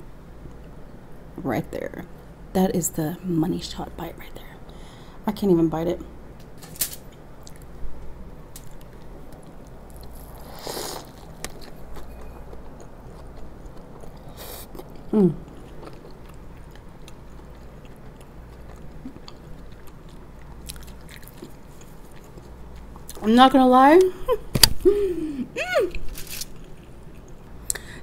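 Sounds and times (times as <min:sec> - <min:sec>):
wet biting and chewing: 0:08.5 - 0:23.2
person humming: 0:15.1 - 0:15.5.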